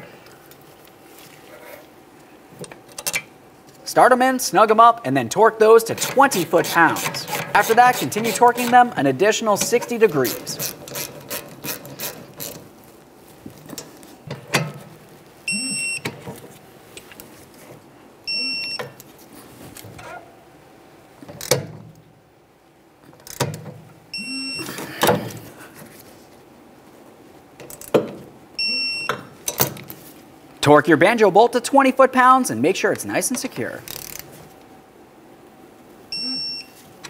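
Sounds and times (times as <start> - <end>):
short high electronic beeps: 15.5 - 16.0, 18.3 - 18.8, 24.2 - 24.7, 28.6 - 29.1, 36.2 - 36.8
torque wrench clicks: 33.9 - 34.2.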